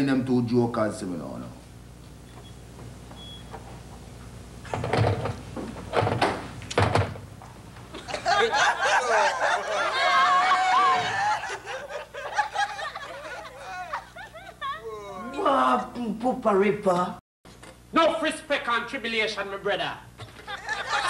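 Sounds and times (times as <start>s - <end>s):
audience laughing: 7.9s - 15.2s, 20.2s - 21.0s.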